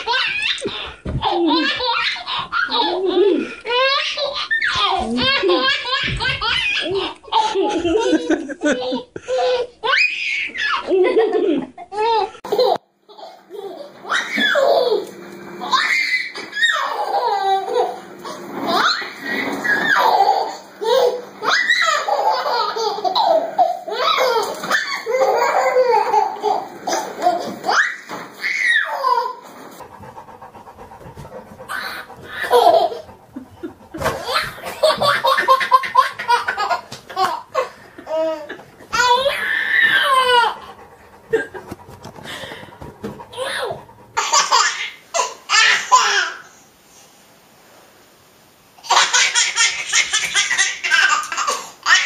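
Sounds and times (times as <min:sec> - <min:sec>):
toddler laughing: 0:00.0 - 0:29.4, 0:30.5 - 0:46.5, 0:48.8 - 0:52.0
baby squealing with laughter: 0:01.5 - 0:05.0, 0:09.4 - 0:10.9, 0:14.0 - 0:15.0, 0:15.6 - 0:18.0, 0:18.7 - 0:29.4, 0:38.1 - 0:40.7.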